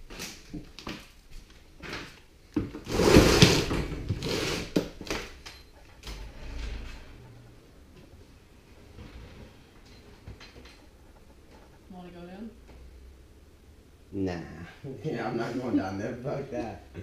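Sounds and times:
wooden door scraping and rattling: 0:02.8 - 0:07.6.

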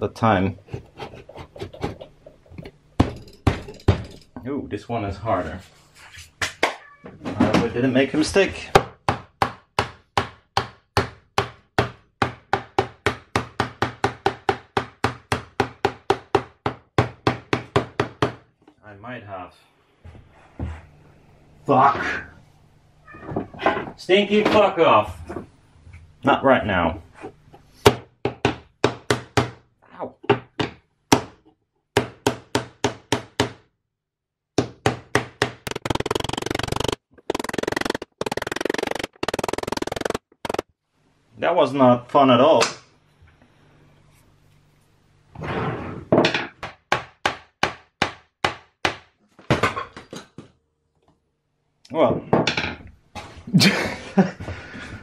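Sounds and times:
hammer striking wood: 0:08.7 - 0:18.5, 0:27.8 - 0:29.6, 0:30.3 - 0:31.4, 0:32.0 - 0:33.7, 0:34.6 - 0:36.0, 0:46.3 - 0:49.8.

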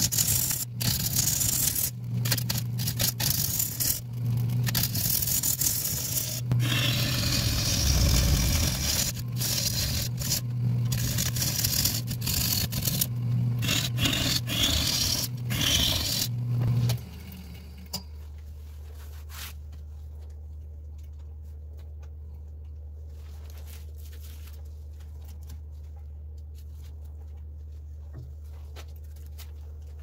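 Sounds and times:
lathe tool scraping wood: 0:00.0 - 0:17.6
lathe humming: 0:05.0 - 0:17.9.

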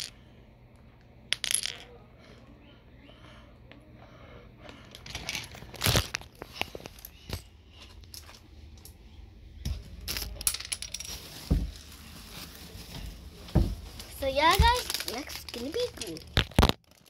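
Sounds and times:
plastic pieces clicking and knocking: 0:14.5 - 0:17.0.

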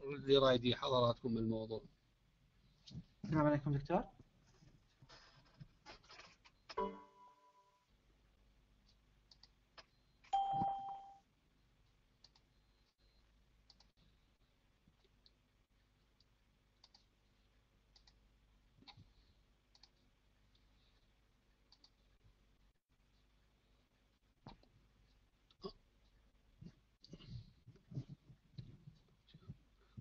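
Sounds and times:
faint clicks: 0:08.8 - 0:09.9, 0:16.2 - 0:17.1, 0:21.5 - 0:22.2.

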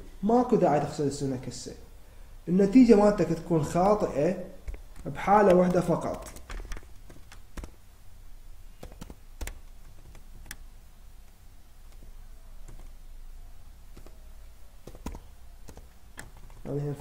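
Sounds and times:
low steady hum: 0:00.0 - 0:17.0
keyboard keystrokes: 0:04.6 - 0:07.8, 0:08.8 - 0:13.0, 0:13.9 - 0:16.7.

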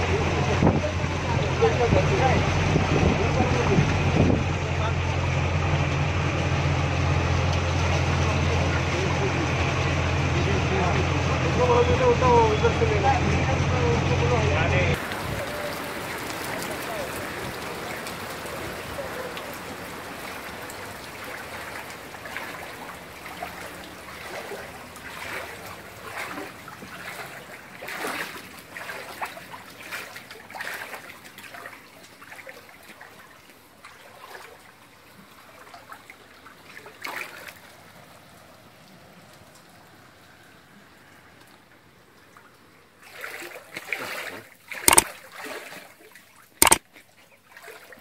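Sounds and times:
wading through floodwater splashes: 0:00.0 - 0:48.0
water trickling: 0:14.2 - 0:48.0.

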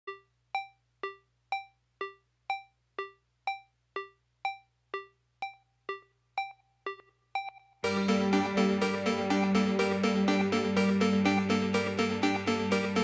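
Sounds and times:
synthesizer keyboard notes: 0:05.0 - 0:13.0.

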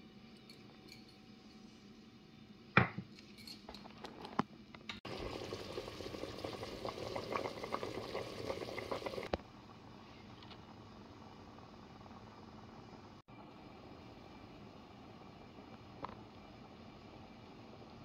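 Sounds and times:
boiling stock crackling and splashing: 0:05.0 - 0:09.4.

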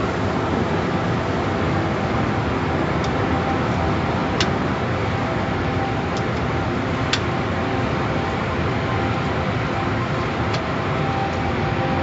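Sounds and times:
car wash water spray and machinery: 0:00.0 - 0:12.0.

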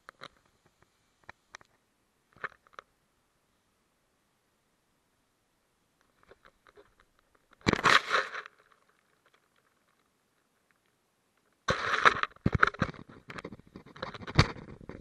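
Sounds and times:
faint clicks: 0:00.0 - 0:02.9
rustling and crunching: 0:06.0 - 0:15.0.

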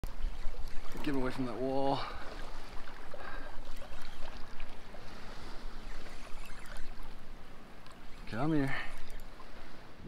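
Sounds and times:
sea water lapping and sloshing: 0:00.0 - 0:10.0
faint ticks: 0:07.8 - 0:09.5.

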